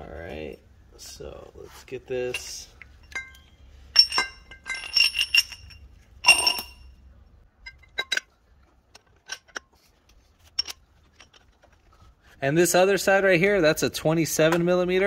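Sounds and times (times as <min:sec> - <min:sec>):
metal parts clinking and knocking: 0:02.3 - 0:07.0, 0:07.6 - 0:12.1.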